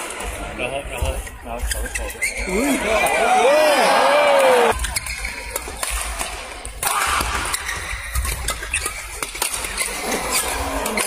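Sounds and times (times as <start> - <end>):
rackets hitting shuttlecock: 4.7 - 11.0.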